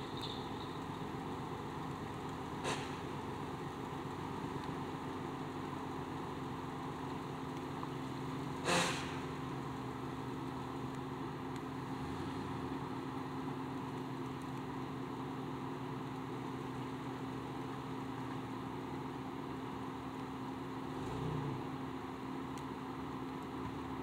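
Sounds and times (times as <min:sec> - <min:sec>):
car engine idling: 0:00.0 - 0:24.0
short sharp noise burst: 0:08.6 - 0:09.3.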